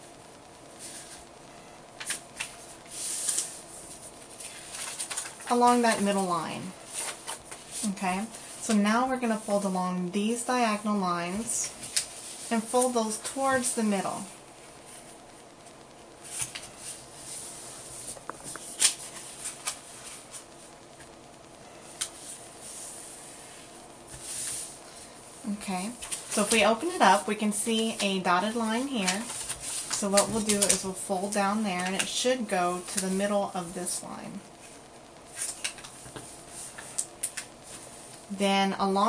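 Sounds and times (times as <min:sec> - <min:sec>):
paper rustling and crinkling: 0:02.0 - 0:08.6, 0:11.4 - 0:13.7, 0:16.2 - 0:21.1, 0:25.9 - 0:32.2, 0:34.6 - 0:38.2.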